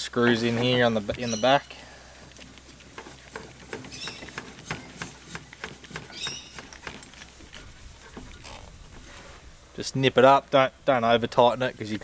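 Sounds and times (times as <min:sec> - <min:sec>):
metal threads scraping: 0:02.2 - 0:09.4.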